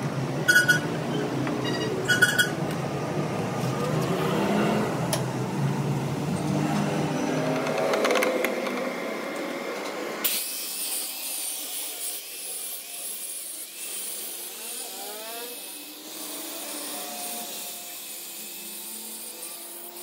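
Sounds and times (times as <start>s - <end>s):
angle grinder grinding steel: 0.5s - 2.6s, 10.2s - 20.0s.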